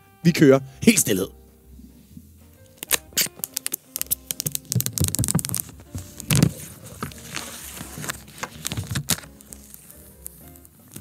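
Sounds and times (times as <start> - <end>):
plastic wrapping crackling: 2.6 - 11.0
box scraping: 4.5 - 9.9.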